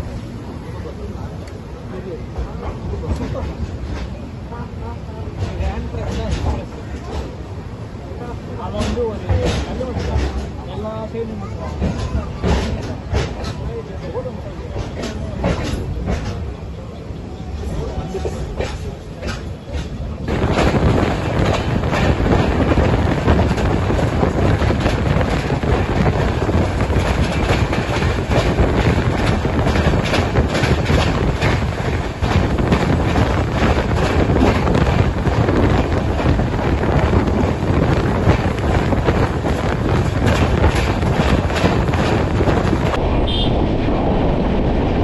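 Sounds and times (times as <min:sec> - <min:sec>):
train running at speed: 0:00.0 - 0:45.0
train wheels clacking on rails: 0:05.1 - 0:07.5, 0:08.5 - 0:10.8, 0:11.4 - 0:16.6, 0:17.6 - 0:43.0
wind buffeting microphone: 0:14.8 - 0:45.0.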